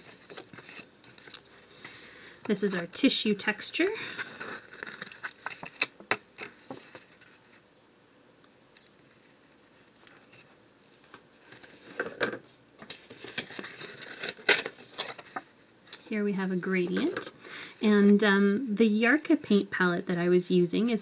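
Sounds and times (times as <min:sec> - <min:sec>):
paper rustling: 0:00.0 - 0:02.0, 0:04.0 - 0:07.6, 0:09.1 - 0:15.5.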